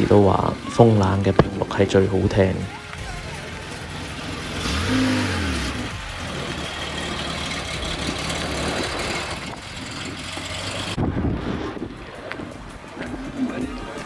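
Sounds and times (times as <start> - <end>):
car engine idling: 0.0 - 11.0.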